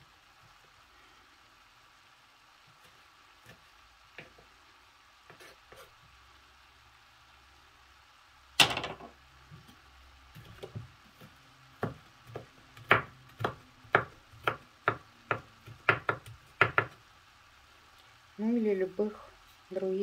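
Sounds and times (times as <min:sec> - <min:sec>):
knife chopping on wooden board: 0:10.4 - 0:17.0.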